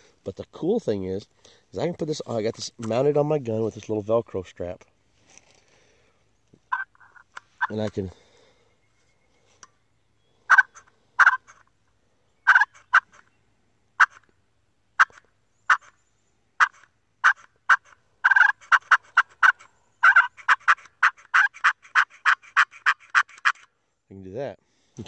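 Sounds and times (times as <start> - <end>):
turkey call clucks: 6.7 - 7.9, 10.5 - 11.7, 12.4 - 13.3, 14.0 - 14.3, 15.0 - 16.0, 16.6 - 23.7.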